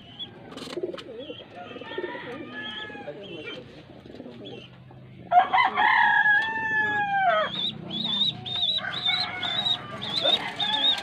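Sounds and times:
rooster crowing: 1.5s - 3.2s, 5.3s - 7.6s, 8.6s - 11.0s.

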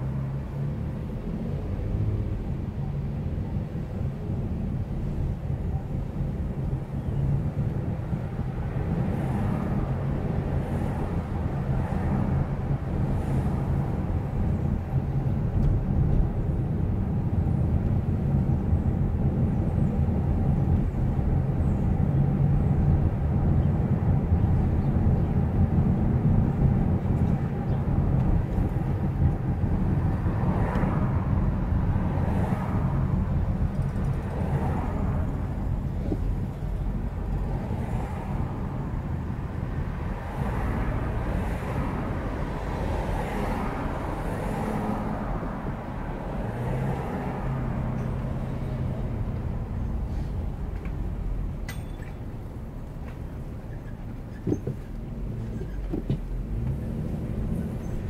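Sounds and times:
car road and tyre noise: 0.0s - 58.0s
traffic: 0.0s - 58.0s.

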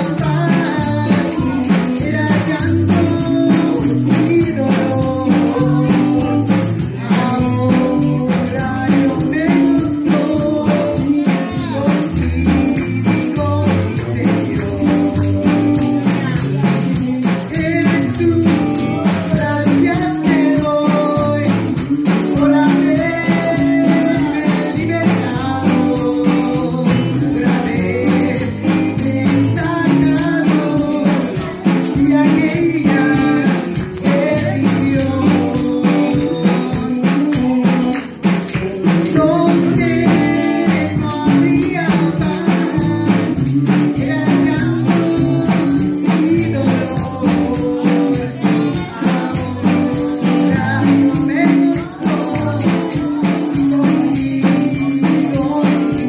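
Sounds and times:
electric guitar: 0.0s - 56.0s
rhythmic shaker: 0.0s - 56.0s
woman singing into microphone: 0.0s - 56.0s.

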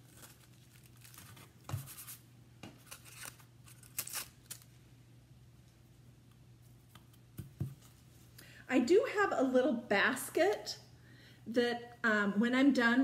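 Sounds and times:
gold leaf paper crackling: 0.0s - 2.2s
faint steady hum: 0.0s - 13.0s.

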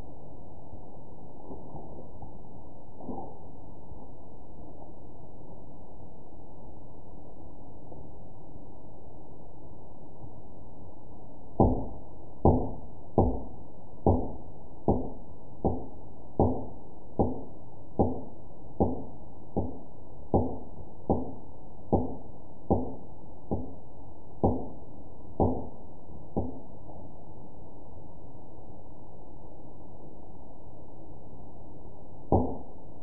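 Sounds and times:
dull knocks: 11.6s - 23.8s, 25.4s - 25.7s.

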